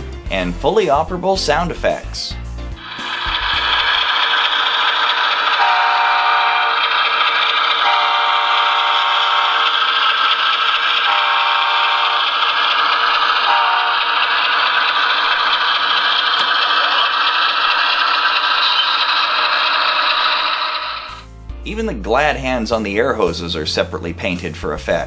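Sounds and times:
model diesel engine running: 0:00.0 - 0:25.0
train horn blasts: 0:05.6 - 0:06.7, 0:07.8 - 0:09.6, 0:11.1 - 0:12.2, 0:13.5 - 0:14.0.

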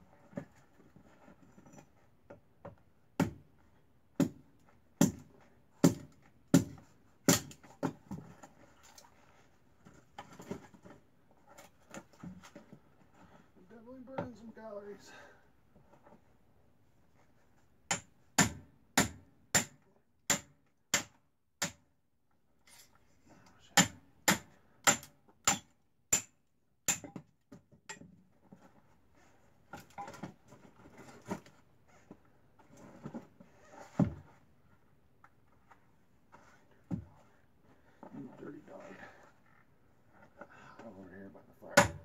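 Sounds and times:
hatchet splitting firewood: 0:04.2 - 0:08.5, 0:17.9 - 0:21.8, 0:23.8 - 0:28.1, 0:41.8 - 0:42.0.

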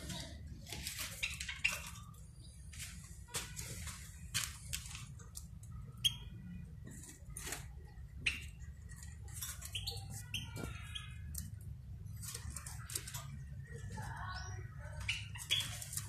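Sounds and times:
finches chirping: 0:08.2 - 0:11.6.

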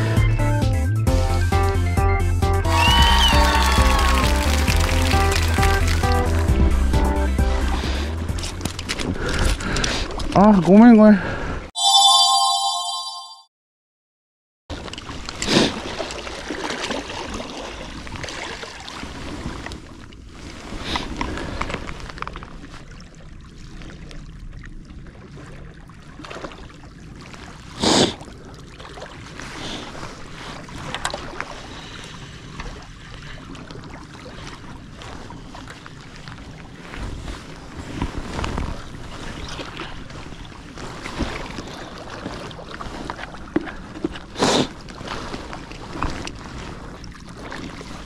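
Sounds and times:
sea washing against shore: 0:02.7 - 0:06.4, 0:25.2 - 0:48.0
wind rumbling on microphone: 0:29.2 - 0:44.2.

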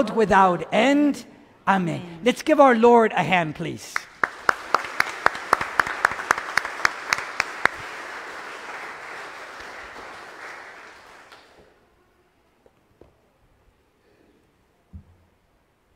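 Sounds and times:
congregation applauding: 0:03.9 - 0:11.8
loud close hand claps: 0:04.0 - 0:11.8.

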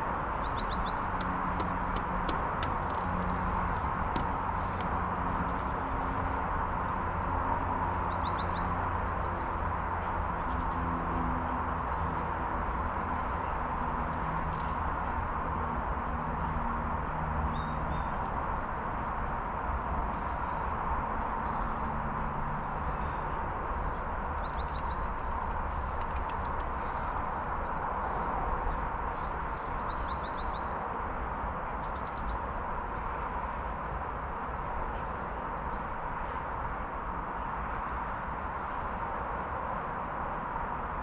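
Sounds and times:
steady outdoor hiss: 0:00.0 - 0:41.0
small birds chirping: 0:00.4 - 0:07.0, 0:21.2 - 0:31.2.

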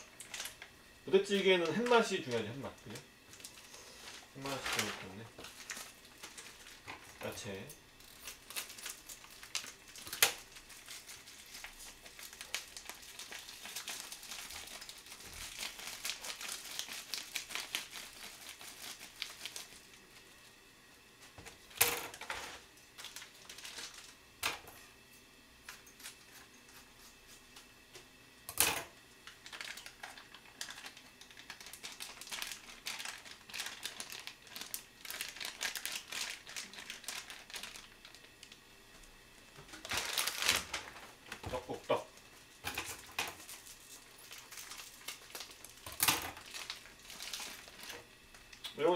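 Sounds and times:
plastic packaging crinkling: 0:00.0 - 0:20.5, 0:21.4 - 0:24.2, 0:29.2 - 0:39.1, 0:39.7 - 0:48.7
scissors cutting plastic: 0:08.0 - 0:19.7.

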